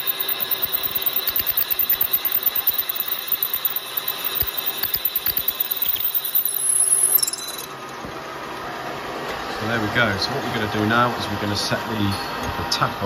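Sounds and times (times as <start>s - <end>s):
drill cutting cast iron: 0.0s - 8.0s.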